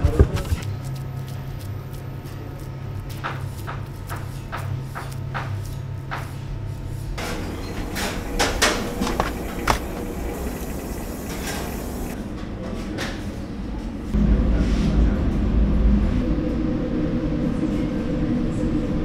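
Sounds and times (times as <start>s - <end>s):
steady low hum: 5.3s - 12.2s.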